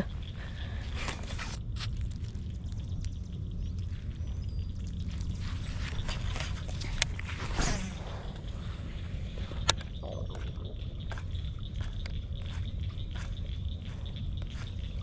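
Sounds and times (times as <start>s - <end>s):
wind rumble on microphone: 0.0s - 15.0s
faint high chirp: 2.4s - 6.7s.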